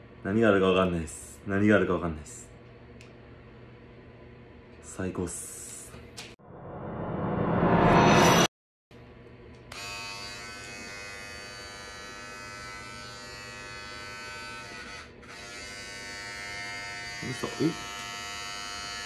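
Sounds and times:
hair clipper buzzing: 9.6 - 19.0.

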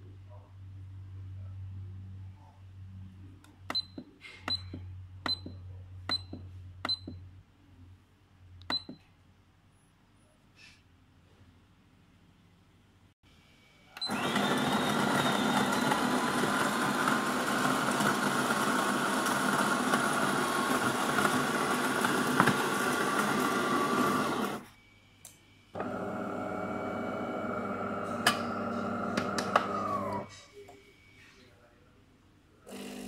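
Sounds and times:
espresso machine hum: 14.0 - 24.7, 25.8 - 30.3
coffee grinder grinding beans: 14.1 - 24.6, 26.0 - 30.3.

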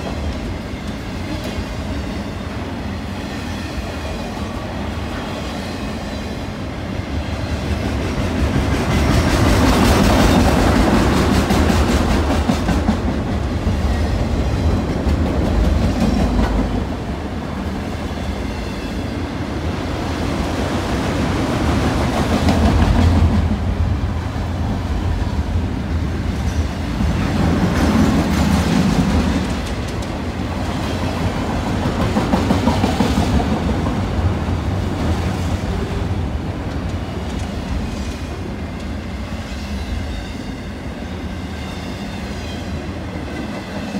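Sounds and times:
train wheels rumbling on rails: 0.0 - 43.9.

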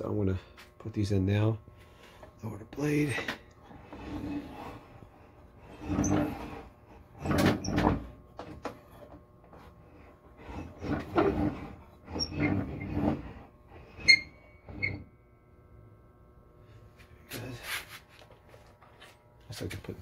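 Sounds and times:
saw crank grinding rattle: 5.6 - 8.6, 10.4 - 15.0.

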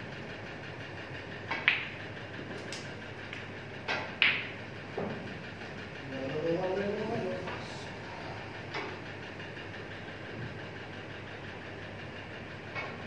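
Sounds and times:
snooker balls clacking: 1.5 - 2.0, 3.8 - 5.2.

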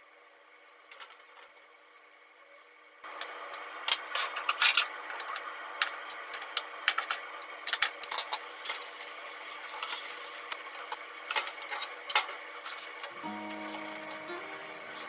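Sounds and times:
simmering hiss: 12.6 - 15.0.

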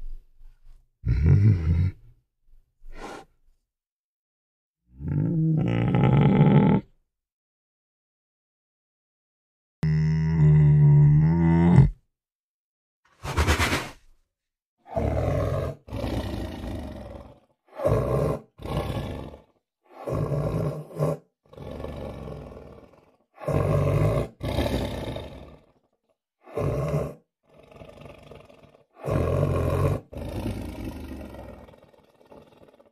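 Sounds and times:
deep lion-like roars: 14.9 - 25.8, 26.5 - 32.9.

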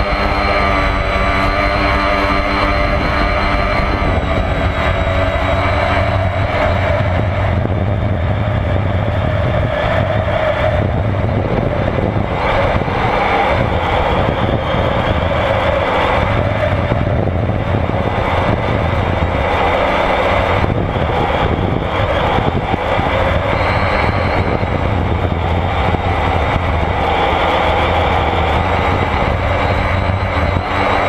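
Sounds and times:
rush of air: 0.0 - 31.0.

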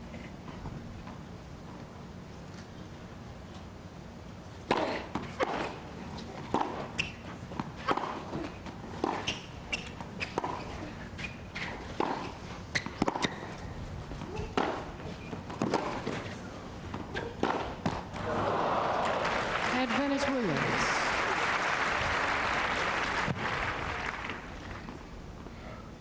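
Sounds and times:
tennis ball hit with rackets: 4.6 - 5.8, 11.6 - 13.5, 14.2 - 16.3, 16.9 - 18.2
tennis ball bouncing: 4.6 - 13.6, 14.2 - 18.2.

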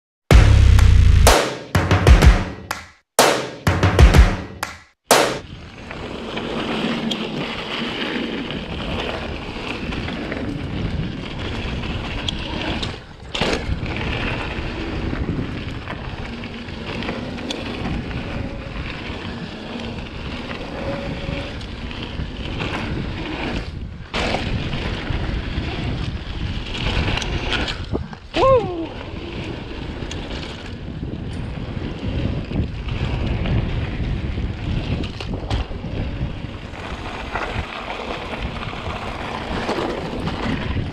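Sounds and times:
sharp knocks: 0.3 - 5.4
bike tyre and trail noise: 5.4 - 40.9
wind rushing over microphone: 17.6 - 40.9.

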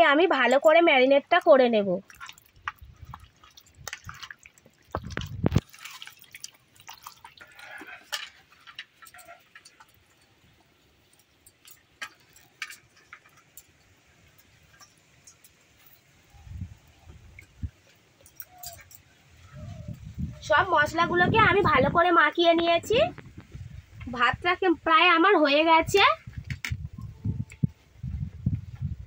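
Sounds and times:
hands mixing raw meat: 0.4 - 10.0.

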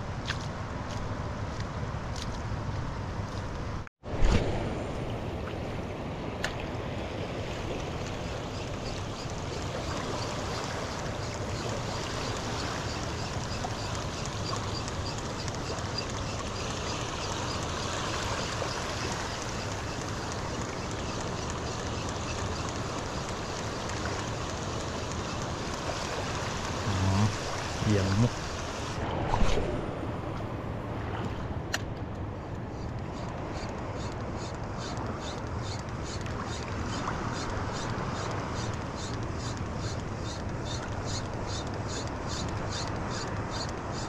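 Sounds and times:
faint regular ticking: 8.0 - 28.3.

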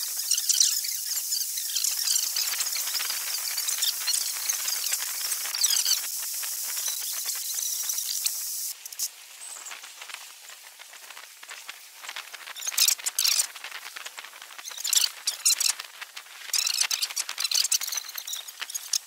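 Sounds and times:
sharp high chirps: 0.0 - 8.7
steady high hiss: 0.0 - 19.0.

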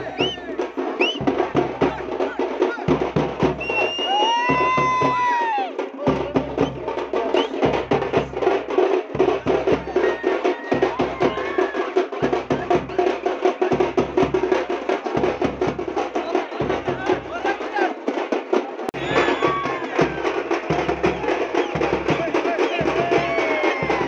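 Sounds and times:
fast dance drumming: 0.0 - 24.0
shrill call: 3.6 - 5.7, 19.0 - 24.0.

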